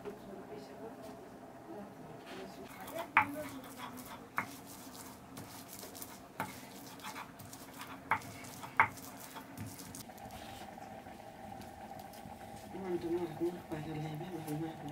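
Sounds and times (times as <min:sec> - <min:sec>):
stone grinding scrape: 0:02.8 - 0:10.0.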